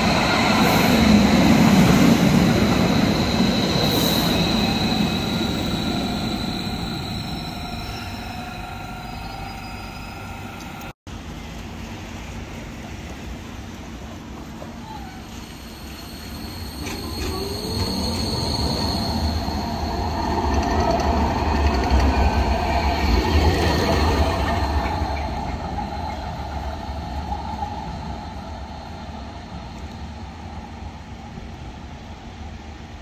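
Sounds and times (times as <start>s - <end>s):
tram rumbling past: 0.0s - 33.0s
steel wheels squealing: 2.4s - 10.9s, 14.8s - 27.0s.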